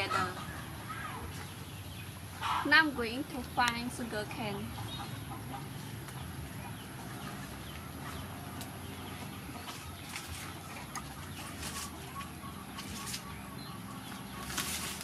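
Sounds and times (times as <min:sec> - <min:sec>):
chickens clucking: 0:00.0 - 0:15.0
rustling of leaves and litter: 0:09.2 - 0:15.0.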